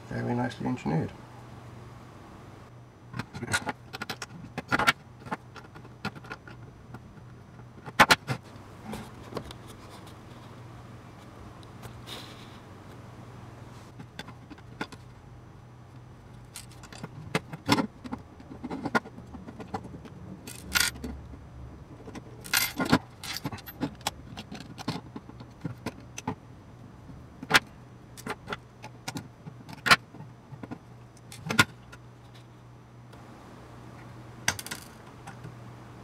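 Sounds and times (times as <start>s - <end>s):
metal gears clinking and clattering: 20.4s - 21.1s, 22.4s - 23.9s.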